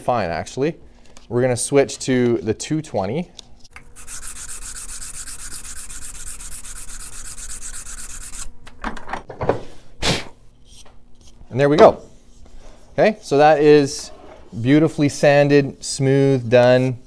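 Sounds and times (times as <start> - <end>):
sandpaper rubbing on wood: 4.0 - 8.5.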